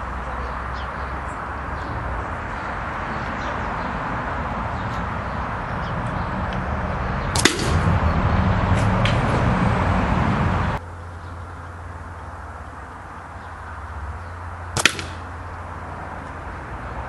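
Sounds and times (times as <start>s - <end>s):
wind rumble on microphone: 1.8s - 10.8s
air rifle cracks: 7.4s - 7.8s, 14.8s - 15.3s.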